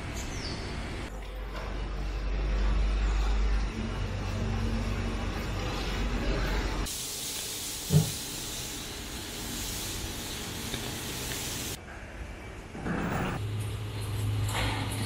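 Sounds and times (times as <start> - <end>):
steady hiss: 6.8 - 11.8.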